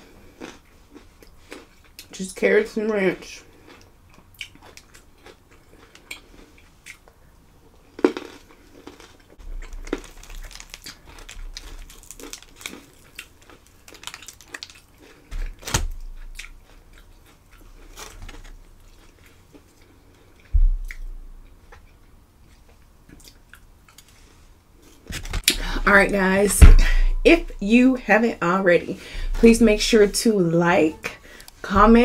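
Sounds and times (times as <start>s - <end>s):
person chewing and crunching food: 0.0s - 2.2s, 3.4s - 25.9s
thump: 20.6s - 21.2s, 26.6s - 27.3s.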